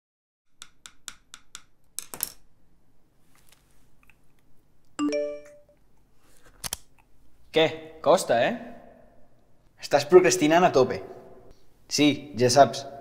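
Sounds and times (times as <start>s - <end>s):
smartphone notification chime: 5.0s - 5.7s.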